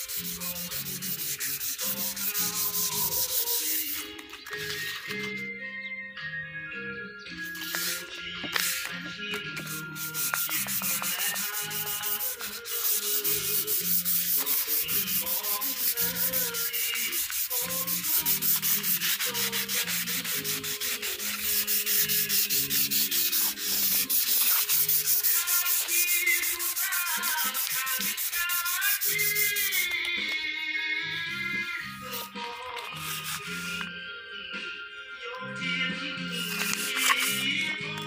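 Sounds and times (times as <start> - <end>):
sandpaper scratching on wood: 0.0 - 4.1, 7.4 - 9.0, 9.6 - 30.0, 32.0 - 33.8, 36.3 - 37.5.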